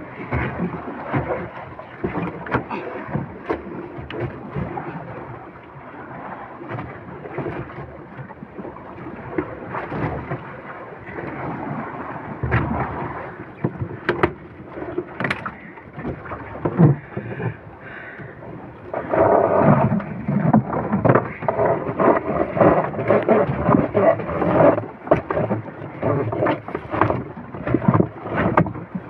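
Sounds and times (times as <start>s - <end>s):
water noise: 0.0s - 29.0s
wind: 0.0s - 29.0s
fish knocking against hull: 13.6s - 18.4s, 19.0s - 28.9s.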